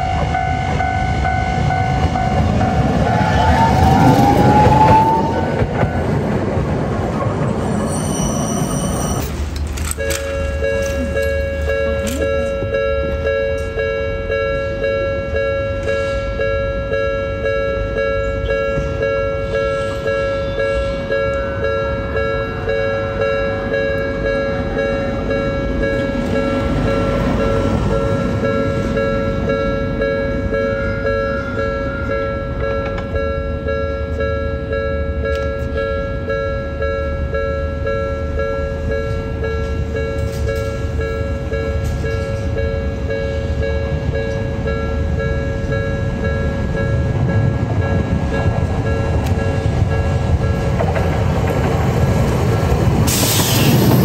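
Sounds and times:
tram rumbling: 0.0s - 54.0s
level crossing bell two-tone clang: 9.9s - 50.7s.

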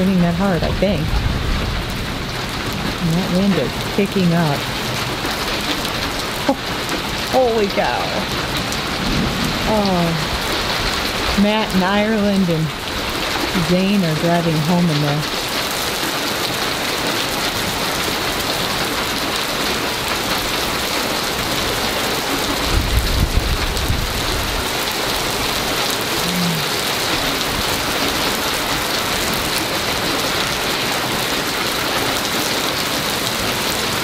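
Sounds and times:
heavy rain pouring: 0.0s - 34.0s.

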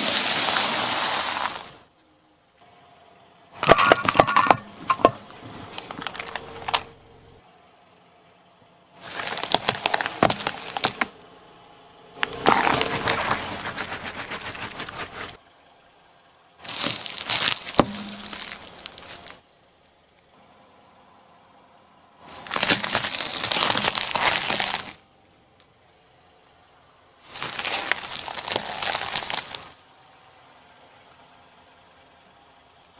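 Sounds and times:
car tyre crushing objects: 0.0s - 1.9s, 3.6s - 7.4s, 9.0s - 11.3s, 12.2s - 15.4s, 16.6s - 20.0s, 22.2s - 25.6s, 27.2s - 29.8s.

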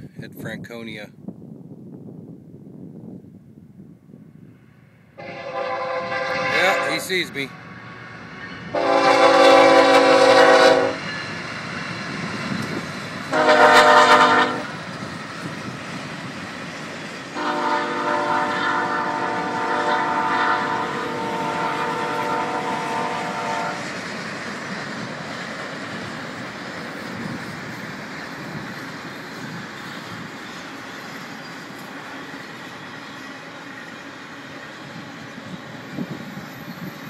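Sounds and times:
passing train noise: 0.0s - 37.0s
locomotive air horn blasts: 5.2s - 8.1s, 8.7s - 11.1s, 13.3s - 14.8s, 17.4s - 23.8s.

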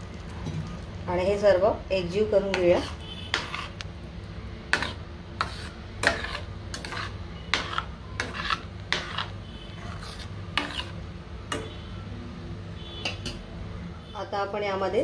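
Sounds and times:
ladle scraping a steel pot: 2.5s - 3.8s, 4.7s - 11.6s.

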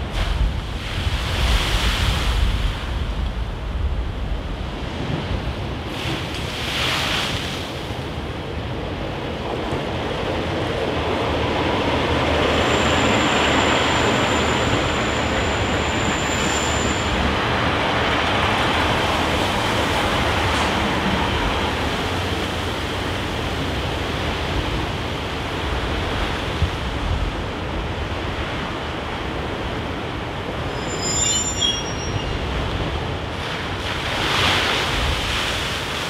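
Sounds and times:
waves surging against wall: 0.0s - 8.9s, 10.3s - 30.7s, 32.4s - 36.0s
diesel train rumble: 8.6s - 33.8s
high thin squeal: 30.7s - 32.5s.

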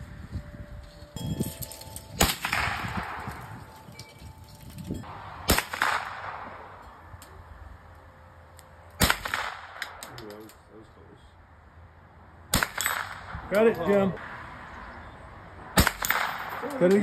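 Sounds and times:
rifle shots: 2.2s - 3.4s, 5.4s - 6.7s, 9.0s - 10.0s, 15.8s - 16.7s.

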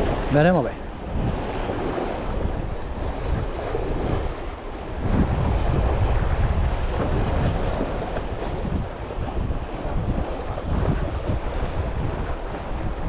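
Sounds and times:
waves washing against rocks: 0.0s - 13.0s
wind buffeting microphone: 0.0s - 13.0s.

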